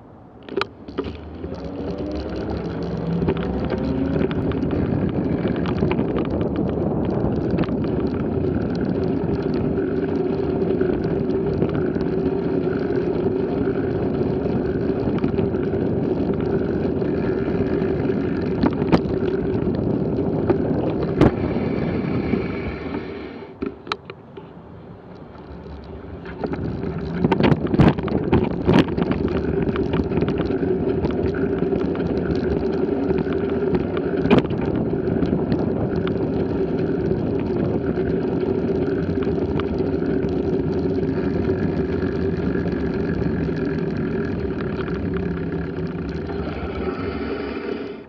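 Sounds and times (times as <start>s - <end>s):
rising hum: 0.0s - 23.6s, 24.9s - 48.0s
bicycle tyre and road noise: 0.0s - 48.0s
wind on microphone: 0.5s - 23.9s, 25.4s - 48.0s.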